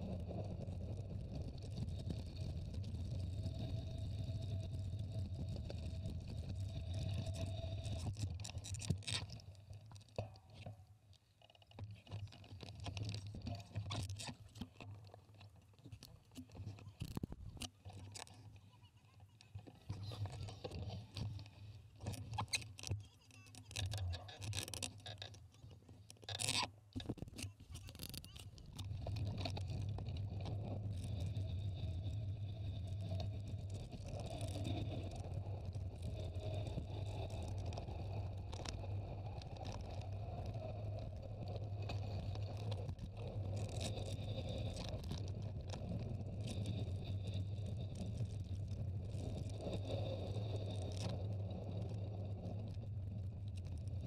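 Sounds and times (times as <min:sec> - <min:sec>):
wind noise: 0:00.0 - 0:09.2.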